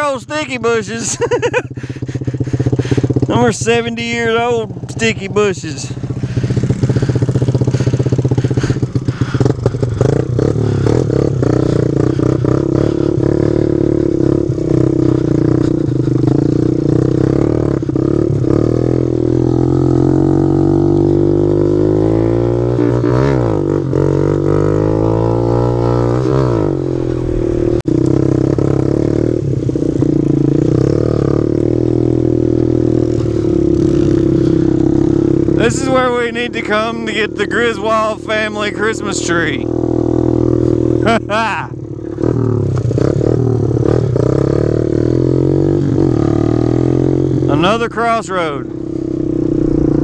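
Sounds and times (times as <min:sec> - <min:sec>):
motorbike engine running: 0:00.0 - 0:50.0.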